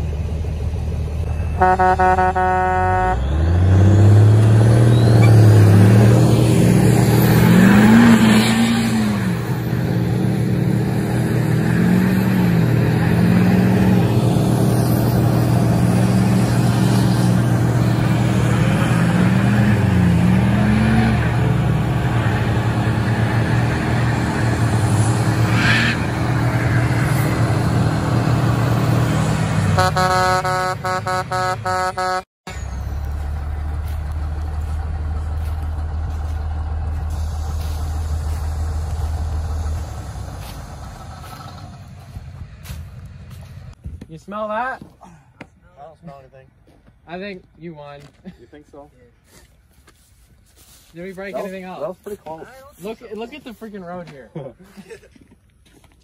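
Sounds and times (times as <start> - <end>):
diesel engines revving: 0.0 - 43.8
vehicle horn: 1.3 - 3.6, 29.8 - 32.3
tires spinning on pavement: 3.1 - 29.8, 32.5 - 43.8.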